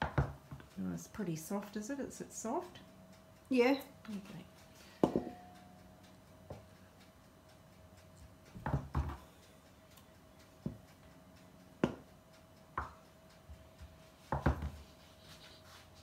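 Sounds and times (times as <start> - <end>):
knife knocking on cutting board: 5.0 - 5.4, 11.8 - 12.0, 14.3 - 14.7.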